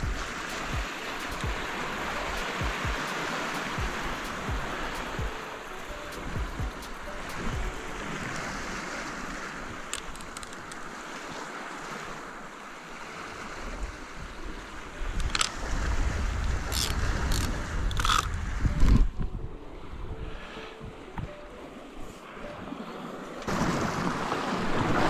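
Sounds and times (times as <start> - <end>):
sea waves washing over rocks: 0.0 - 18.8, 22.2 - 25.0
wind buffeting microphone: 13.5 - 21.5.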